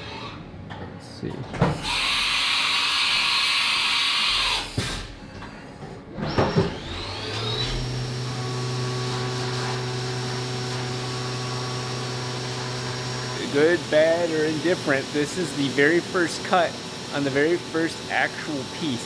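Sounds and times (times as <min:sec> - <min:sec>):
milling spindle whine: 0:06.8 - 0:19.0.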